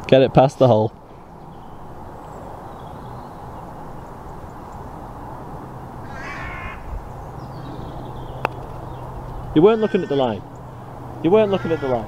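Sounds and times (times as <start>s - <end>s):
bird calling: 6.0s - 12.0s.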